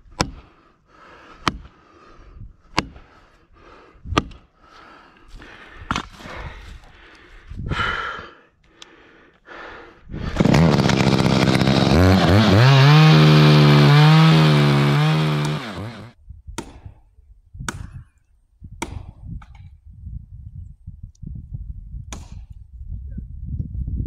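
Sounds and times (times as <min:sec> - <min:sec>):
chainsaw revving: 0:10.3 - 0:16.2.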